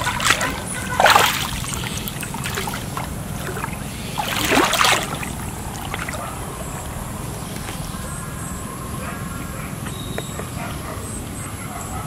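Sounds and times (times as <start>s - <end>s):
water sloshing and splashing: 0.0s - 8.5s.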